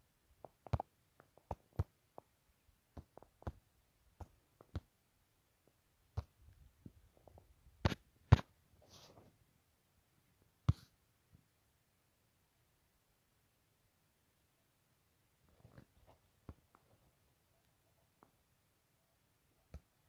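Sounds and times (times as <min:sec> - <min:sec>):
faint clicks and knocks: 0:00.4 - 0:04.9.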